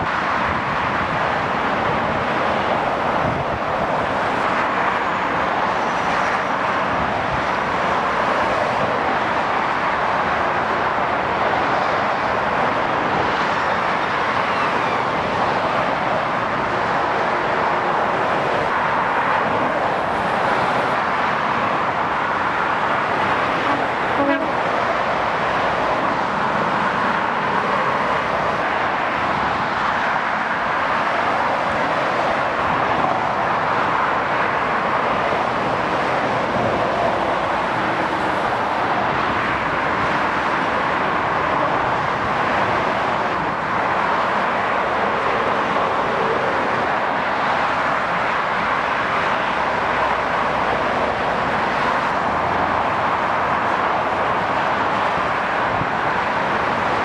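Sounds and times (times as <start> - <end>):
motorway traffic rushing: 0.0 - 57.0
short horn toot: 23.6 - 24.6.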